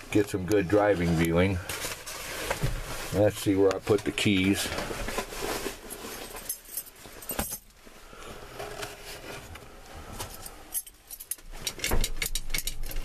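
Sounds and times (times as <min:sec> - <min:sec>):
keys jangling on a ring: 0:10.4 - 0:13.0.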